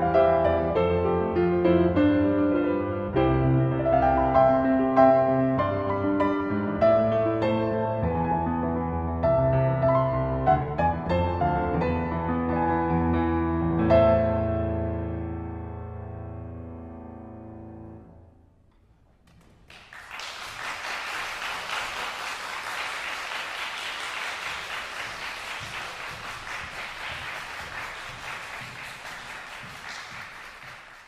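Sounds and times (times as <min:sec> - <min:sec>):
audience applause: 0:19.3 - 0:31.0.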